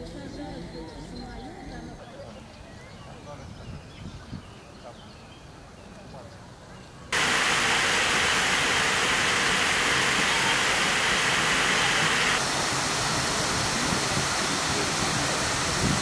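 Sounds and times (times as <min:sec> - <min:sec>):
fountain water splashing: 0:07.2 - 0:16.0.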